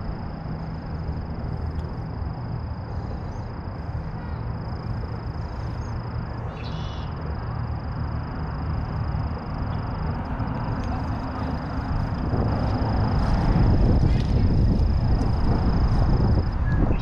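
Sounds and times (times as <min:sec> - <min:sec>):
wind rumble on microphone: 0:08.6 - 0:17.0.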